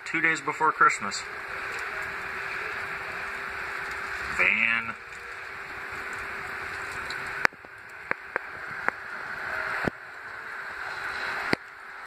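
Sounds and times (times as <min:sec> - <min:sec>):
outdoor ambience hiss: 0:00.0 - 0:12.0.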